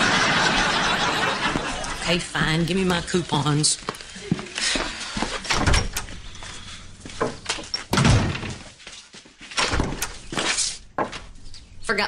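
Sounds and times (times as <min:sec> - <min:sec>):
wooden door shutting: 0:05.4 - 0:06.3, 0:07.1 - 0:08.8, 0:09.6 - 0:11.4
sudden thuds: 0:07.1 - 0:08.8, 0:09.6 - 0:11.4.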